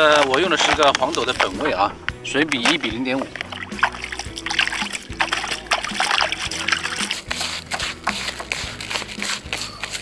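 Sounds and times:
background music: 0.0 - 10.0
water splashing: 0.2 - 9.6.

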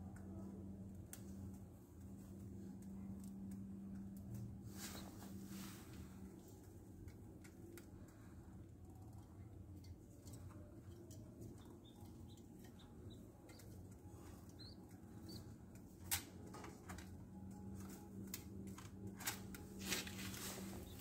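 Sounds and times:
low steady hum: 0.0 - 21.0
pigeon wings rustling: 19.8 - 21.0.

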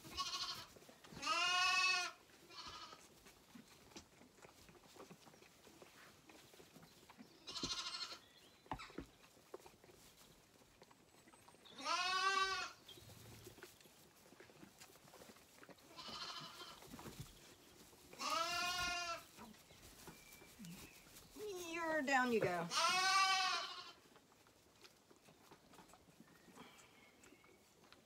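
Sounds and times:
lambs bleating: 0.1 - 3.0, 7.4 - 8.2, 11.8 - 12.8, 15.9 - 16.9, 18.2 - 19.3, 22.7 - 24.0
knocks and rustles in straw: 12.8 - 25.0.

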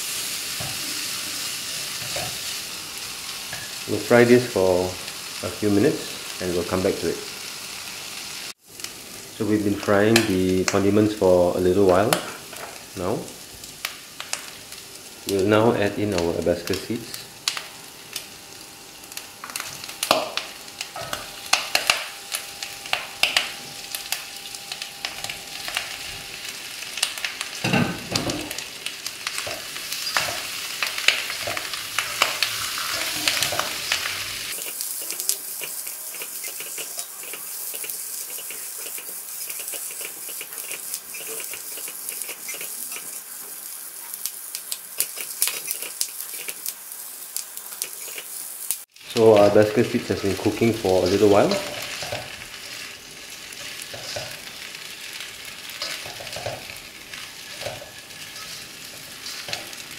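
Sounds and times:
food sizzling in hot oil: 0.0 - 59.9
spatula scraping and knocking wok: 50.9 - 59.9.

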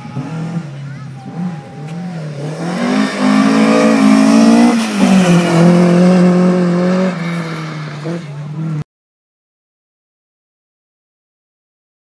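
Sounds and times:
rally car engine accelerating: 0.0 - 8.8.

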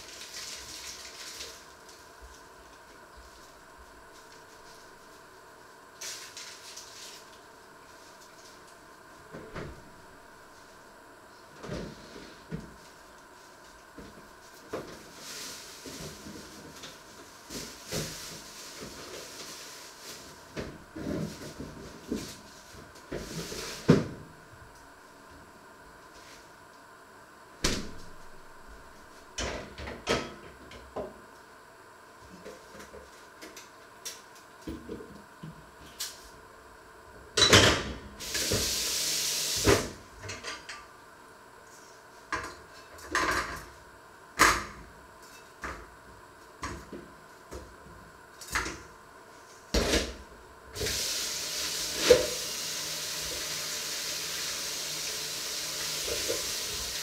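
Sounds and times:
hiss: 38.2 - 40.0, 50.8 - 57.0.

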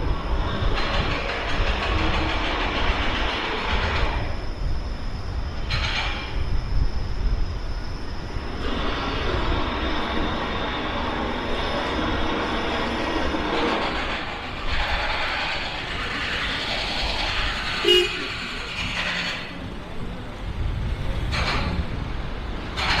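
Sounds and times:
traffic rumble overhead: 0.0 - 23.0.

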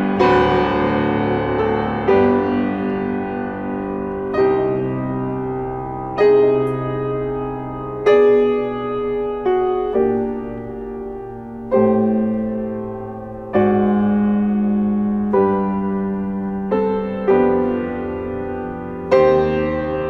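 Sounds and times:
piano chords ringing: 0.0 - 20.0.

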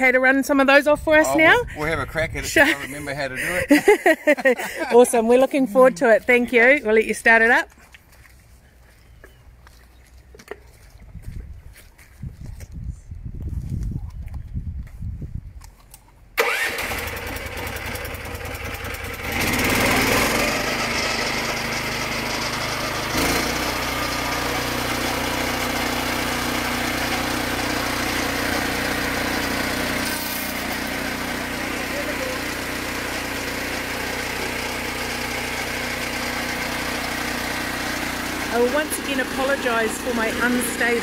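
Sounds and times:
sawmill engine starting and running: 1.1 - 6.9, 16.4 - 41.0.

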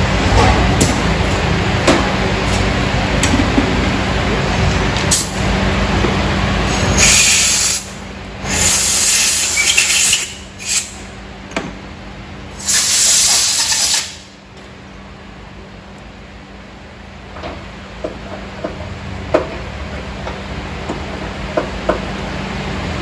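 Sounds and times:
compressed air blasts hissing: 6.7 - 11.0, 12.6 - 14.3.

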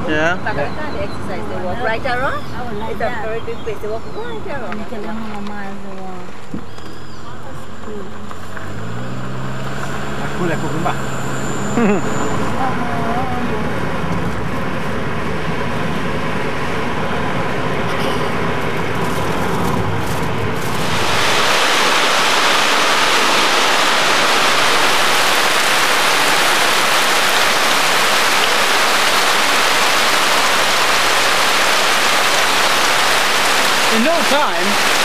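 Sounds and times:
car road noise rumble: 5.7 - 35.0
heavy rain on a corrugated roof: 17.5 - 35.0.

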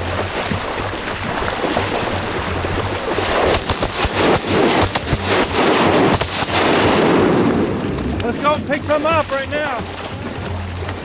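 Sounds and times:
background music: 0.0 - 11.0
shotguns firing: 3.2 - 8.0.

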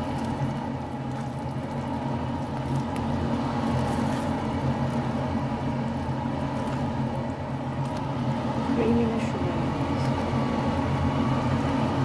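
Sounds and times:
spatula stirring sauce in pan: 0.0 - 8.6
kitchen appliance hum: 0.0 - 12.0.

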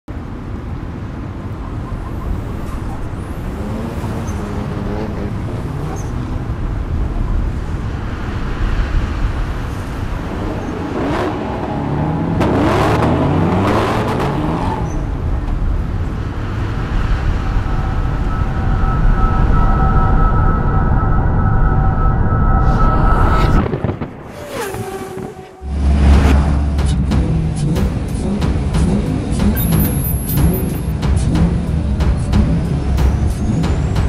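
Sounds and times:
low traffic rumble: 0.1 - 34.0
vehicle passing by: 1.7 - 19.5, 22.7 - 29.5
vehicle accelerating through gears: 2.2 - 6.8, 10.2 - 15.2.

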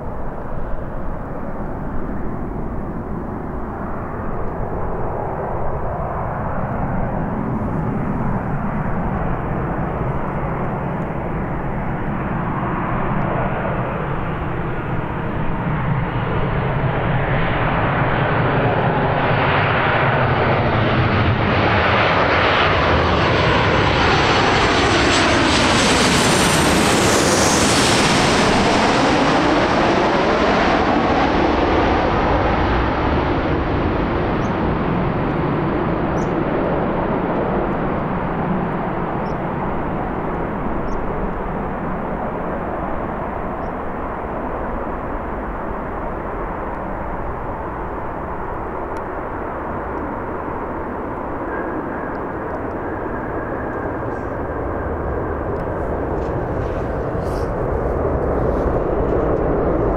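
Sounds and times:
jet engine rush: 0.0 - 59.9.

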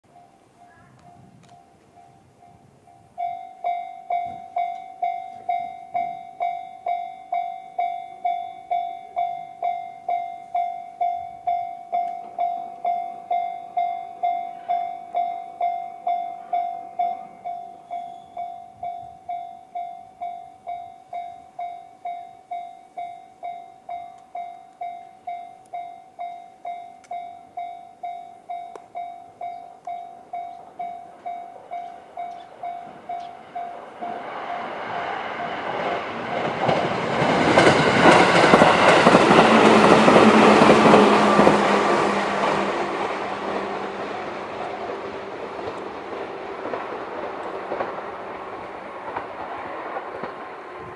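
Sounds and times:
level crossing electronic bell: 0.1 - 34.2
electric train passing: 0.1 - 50.9
train wheel clatter: 0.6 - 50.9.

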